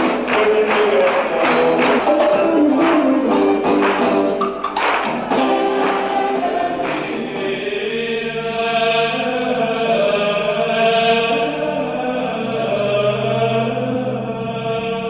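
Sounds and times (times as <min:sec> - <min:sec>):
choir chanting: 0:00.0 - 0:03.7, 0:05.1 - 0:15.0
rhythmic percussive music: 0:00.0 - 0:08.0.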